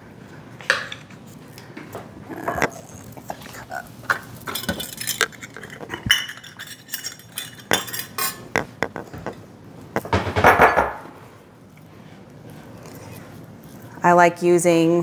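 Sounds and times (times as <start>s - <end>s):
metal cups clinking on counter: 4.5s - 9.0s, 10.4s - 11.0s.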